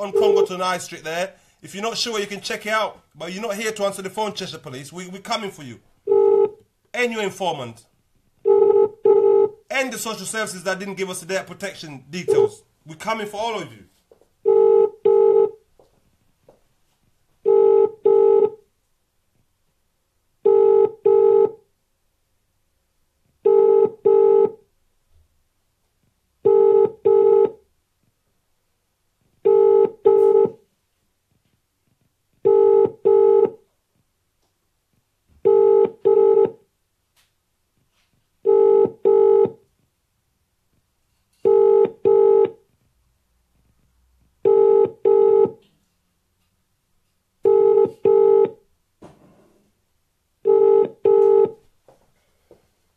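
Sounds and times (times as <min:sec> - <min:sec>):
telephone ringback tone: 0:00.0 - 0:00.5, 0:08.5 - 0:09.5, 0:14.5 - 0:15.6, 0:17.5 - 0:18.6, 0:20.5 - 0:21.6, 0:23.5 - 0:24.6, 0:26.5 - 0:27.6, 0:29.5 - 0:30.6, 0:32.5 - 0:33.6, 0:35.4 - 0:36.6, 0:38.5 - 0:39.6, 0:41.4 - 0:42.6, 0:44.5 - 0:45.6, 0:47.4 - 0:48.6, 0:50.5 - 0:51.6.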